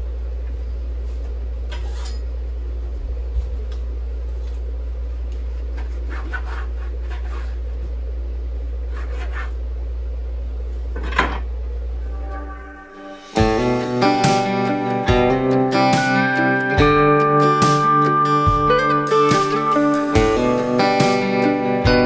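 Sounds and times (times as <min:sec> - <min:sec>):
steady low hum: 0:00.0 - 0:17.3
knife scraping on cutting board: 0:01.7 - 0:02.2, 0:05.6 - 0:07.6, 0:08.9 - 0:09.6.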